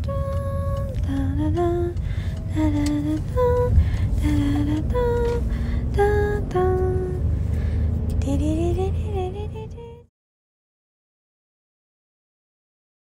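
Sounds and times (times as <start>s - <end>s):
person humming a slow melody: 0.0s - 7.3s.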